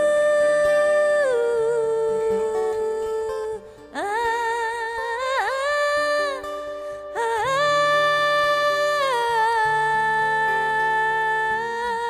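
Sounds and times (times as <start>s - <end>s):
woman singing wordless vocals: 0.0s - 12.0s.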